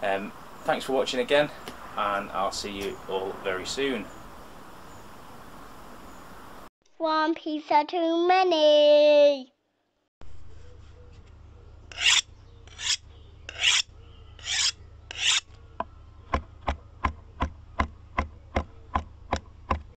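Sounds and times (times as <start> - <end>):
rasping scrapes: 11.9 - 15.5.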